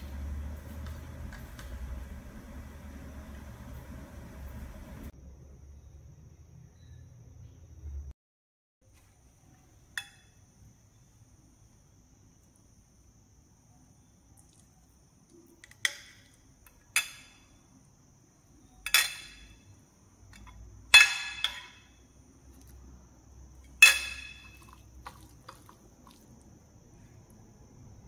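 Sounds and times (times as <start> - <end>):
spoon clinking against glass dishes: 18.9 - 19.6, 23.8 - 25.2.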